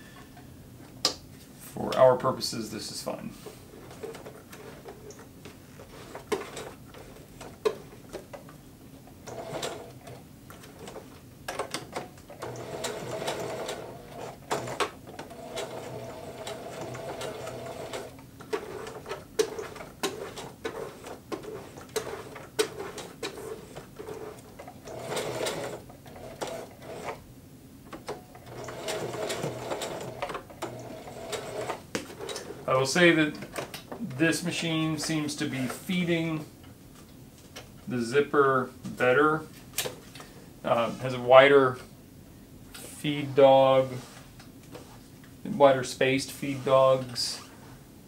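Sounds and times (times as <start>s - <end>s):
sewing machine stitching: 5.8s - 8.0s, 9.2s - 27.2s, 28.1s - 32.7s.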